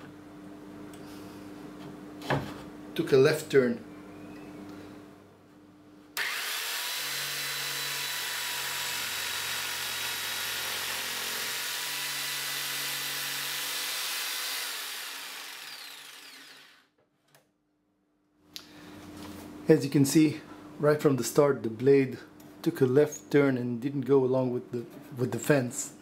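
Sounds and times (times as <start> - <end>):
jigsaw cutting wood: 6.2 - 16.9.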